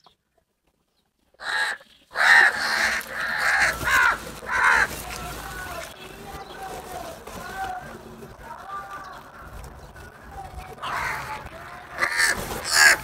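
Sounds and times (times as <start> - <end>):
crows cawing: 1.4 - 5.9, 10.8 - 13.0.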